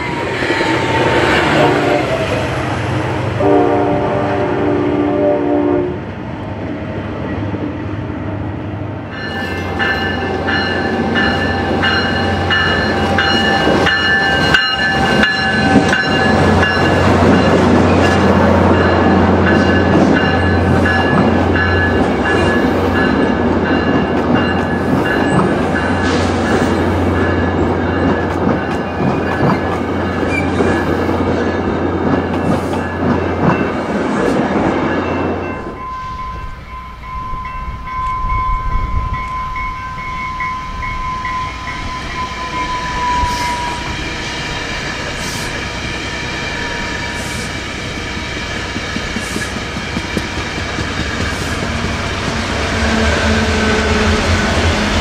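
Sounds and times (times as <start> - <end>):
diesel locomotive drone: 0.0 - 55.0
high ringing tones: 9.1 - 33.8, 34.9 - 45.2
train wheels clicking over rail joints: 46.2 - 54.9.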